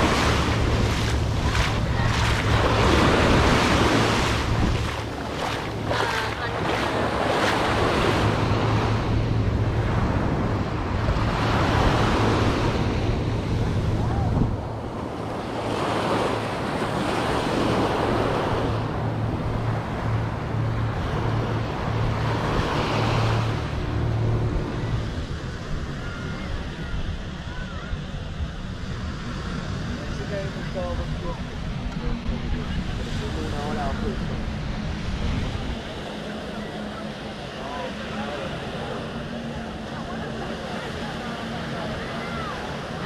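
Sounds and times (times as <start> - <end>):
waves breaking on sand: 0.0 - 27.4
wind buffeting microphone: 0.0 - 37.5
steady low hum: 0.0 - 43.0.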